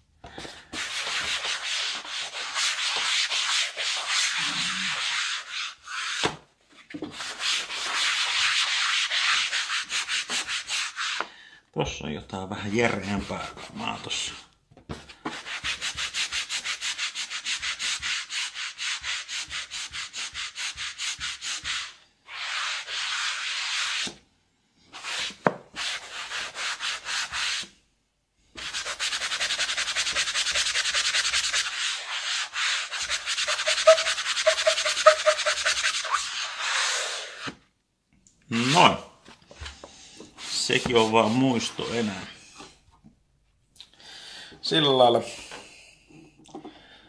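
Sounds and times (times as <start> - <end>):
pad scrubbing plastic: 28.6 - 37.6.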